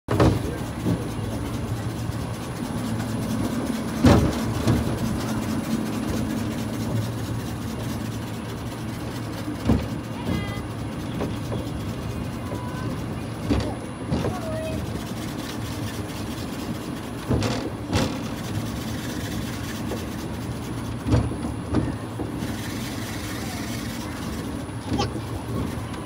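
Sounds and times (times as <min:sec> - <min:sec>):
sharp clunks from car and track: 0:00.1 - 0:01.0
monorail running hum: 0:00.1 - 0:26.0.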